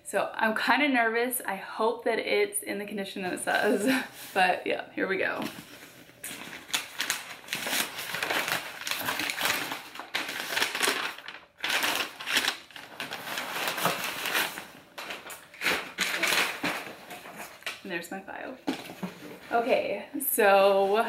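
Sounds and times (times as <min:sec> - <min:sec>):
tissue paper rustling: 0:05.2 - 0:17.7.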